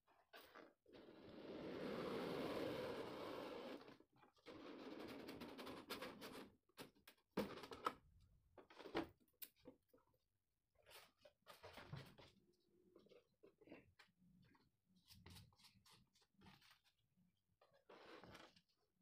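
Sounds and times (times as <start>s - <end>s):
cardboard rustling and scraping: 17.8s - 18.9s.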